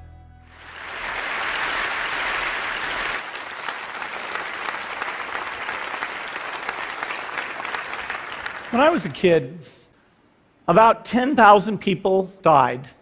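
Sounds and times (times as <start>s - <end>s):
audience applause: 0.5s - 9.2s.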